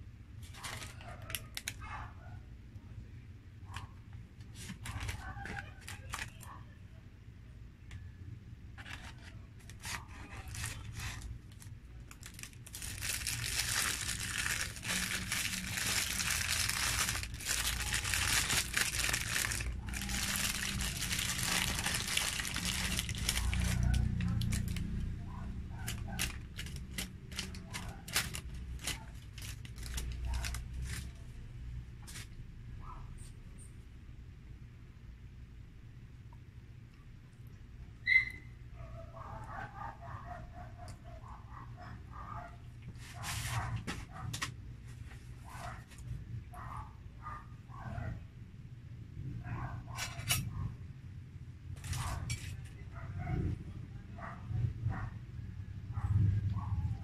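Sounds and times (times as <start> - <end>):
paper crackles and clicks: 0.4 - 1.8, 4.4 - 6.6, 8.8 - 25.1, 25.7 - 31.3
paper wrapper crinkling and tearing: 0.4 - 1.8, 4.5 - 6.6, 8.8 - 25.1, 25.7 - 31.3.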